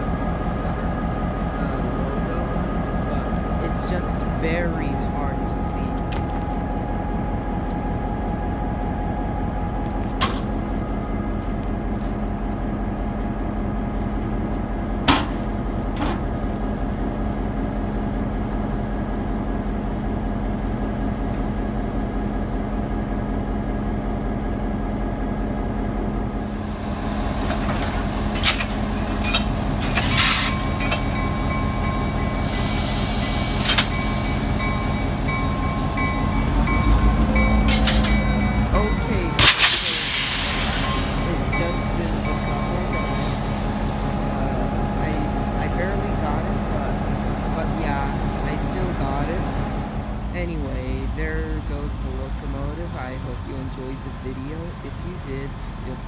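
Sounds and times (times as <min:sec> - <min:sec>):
locomotive engine idling: 0:00.0 - 0:56.0
sharp metallic clanks: 0:35.4 - 0:40.1
hiss: 0:39.4 - 0:41.2.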